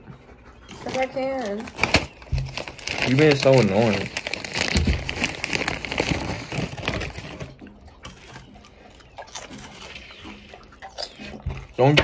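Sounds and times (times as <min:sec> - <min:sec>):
plastic chip bag rustling: 0:00.7 - 0:07.6.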